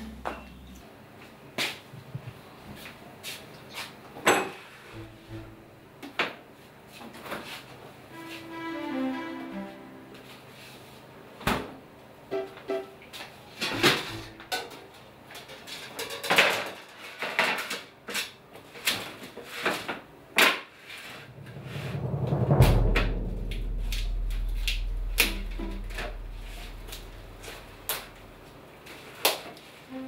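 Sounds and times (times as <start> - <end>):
percussive knocks: 5.0 - 5.7, 21.3 - 28.3
deep boom: 5.0 - 5.8, 21.3 - 28.5.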